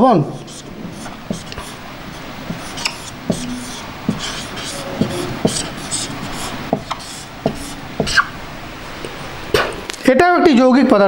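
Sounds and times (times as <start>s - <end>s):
marker pen squeaking on whiteboard: 0.4s - 8.4s.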